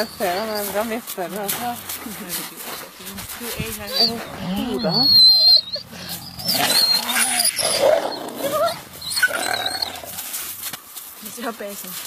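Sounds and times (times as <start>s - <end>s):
wolves whining: 0.0s - 1.1s, 3.4s - 10.6s.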